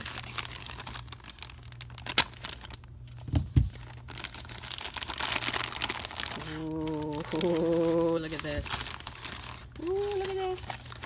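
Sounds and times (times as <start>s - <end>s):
plastic mailer crinkling and tearing: 0.0s - 11.0s
package thumps: 3.2s - 4.0s.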